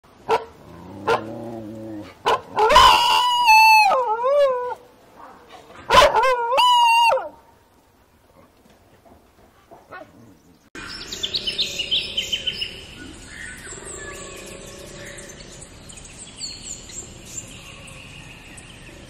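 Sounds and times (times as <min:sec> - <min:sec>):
dingo howling: 0:01.1 - 0:04.8
lower animal call: 0:11.1 - 0:15.8.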